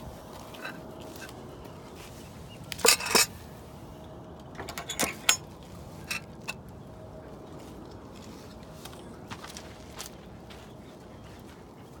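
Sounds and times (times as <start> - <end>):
metal latch clinking: 2.7 - 3.3, 4.5 - 6.6
feed dishes rattling: 2.7 - 3.4, 4.6 - 6.6.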